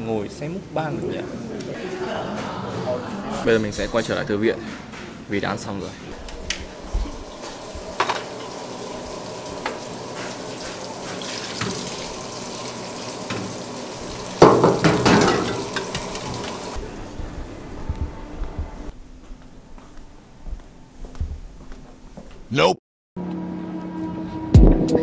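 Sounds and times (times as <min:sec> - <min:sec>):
dishes clattering: 0:01.8 - 0:03.5, 0:07.2 - 0:08.6, 0:14.4 - 0:16.8
water running into sink: 0:06.2 - 0:16.8.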